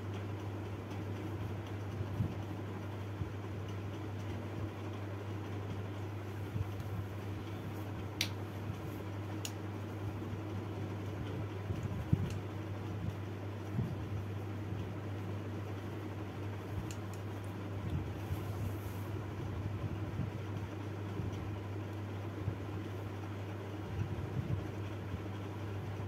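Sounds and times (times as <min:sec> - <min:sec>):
steady low hum: 0:00.0 - 0:26.0
room noise: 0:05.9 - 0:19.6
light sharp clicks: 0:08.2 - 0:08.4, 0:11.8 - 0:12.4.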